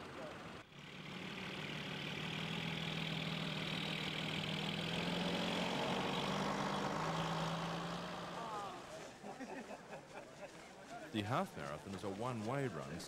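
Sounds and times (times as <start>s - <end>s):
bus engine humming: 0.0s - 9.1s.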